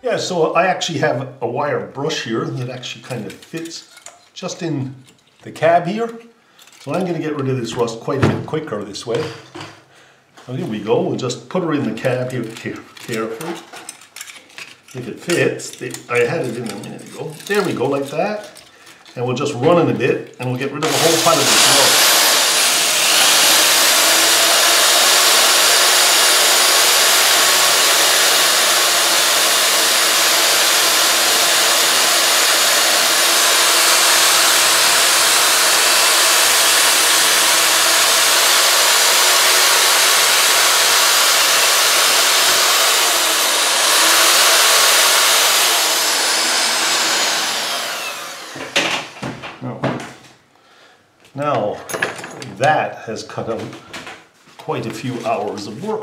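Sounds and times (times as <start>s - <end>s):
electric drill wire brush scouring metal: 12.1s - 19.3s, 20.5s - 48.9s.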